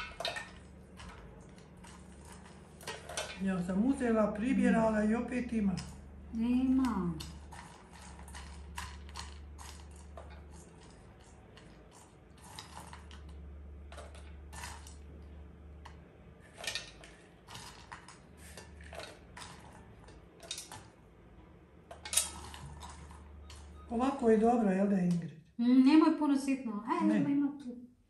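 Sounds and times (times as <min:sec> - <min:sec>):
nuts rustling and clicking in bowl: 0:00.0 - 0:04.6, 0:05.5 - 0:15.2, 0:15.8 - 0:21.1, 0:21.9 - 0:23.8.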